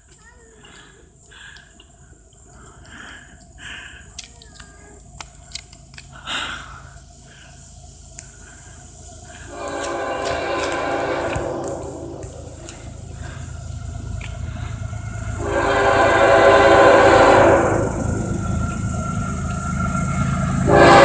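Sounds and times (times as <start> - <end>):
low drone: 8.2 - 21.0
locomotive air horn: 9.4 - 13.5, 14.4 - 19.2, 20.4 - 21.0.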